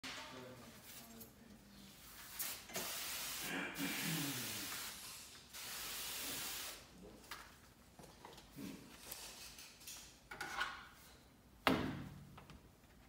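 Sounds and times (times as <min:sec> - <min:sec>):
spray wand hissing: 0:02.2 - 0:06.9.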